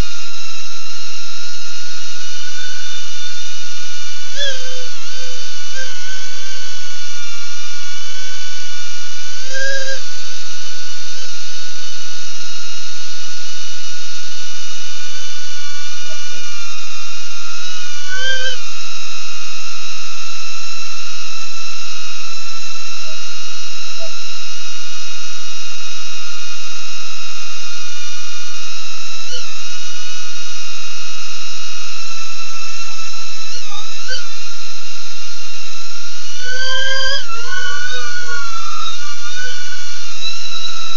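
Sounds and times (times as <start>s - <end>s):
drone propellers whining: 36.2s - 40.9s.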